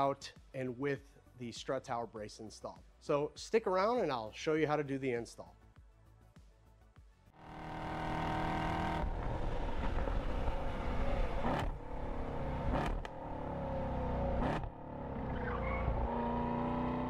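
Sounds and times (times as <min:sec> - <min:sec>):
car engine revving hard: 0:07.4 - 0:17.0.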